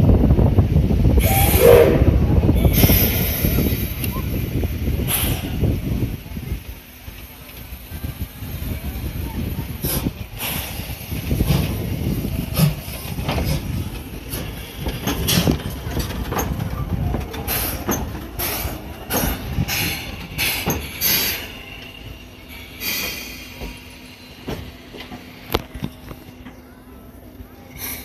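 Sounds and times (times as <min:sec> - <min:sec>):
steam locomotive low rumble: 0:00.0 - 0:28.0
short sharp steam bursts: 0:01.2 - 0:05.8, 0:22.5 - 0:24.4.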